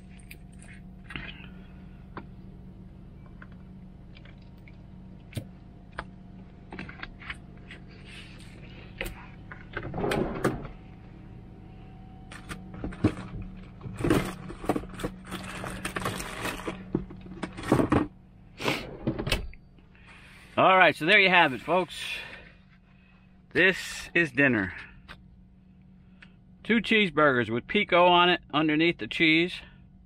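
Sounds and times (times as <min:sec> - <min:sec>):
low hum: 0:00.0 - 0:30.0
rustling and clattering: 0:12.3 - 0:19.6.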